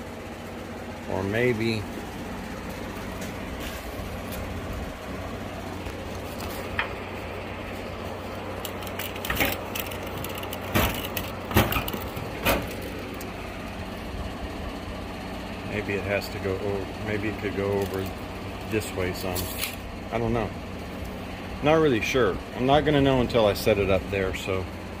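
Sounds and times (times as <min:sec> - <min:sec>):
low hum: 0:00.0 - 0:25.0
handling knocks and clicks: 0:08.6 - 0:13.3.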